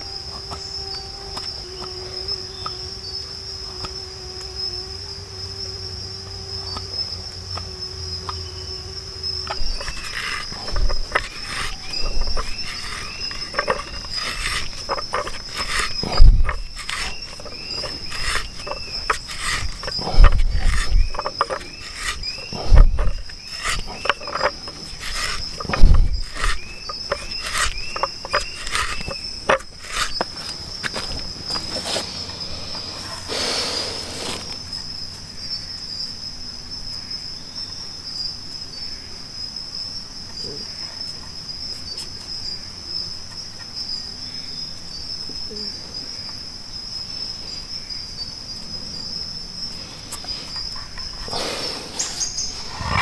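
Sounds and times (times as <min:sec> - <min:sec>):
crickets chirring: 0:00.0 - 0:53.0
heavy thumps: 0:09.5 - 0:30.2
wood creaking and crunching: 0:09.5 - 0:32.1.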